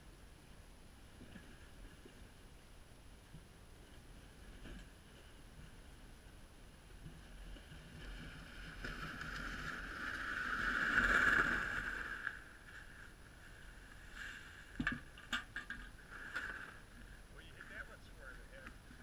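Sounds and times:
sled scraping down snow: 0:07.3 - 0:14.8.

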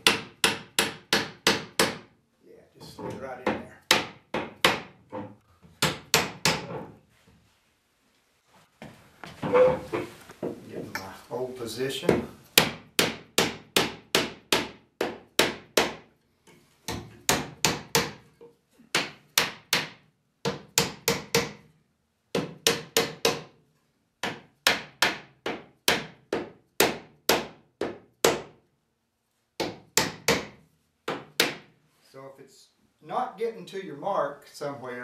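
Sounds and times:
hammer tapping wood: 0:00.0 - 0:02.1, 0:16.9 - 0:18.2, 0:19.0 - 0:21.6, 0:22.4 - 0:23.5, 0:29.6 - 0:31.7.

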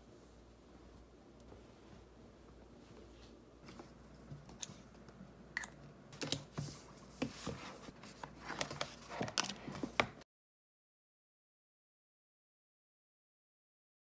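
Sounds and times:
paper rustling: 0:06.2 - 0:10.2.

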